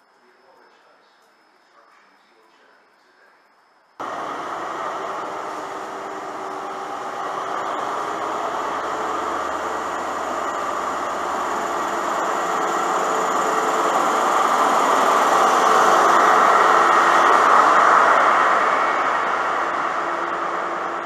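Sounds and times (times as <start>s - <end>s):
diesel train engine running: 4.0s - 21.0s.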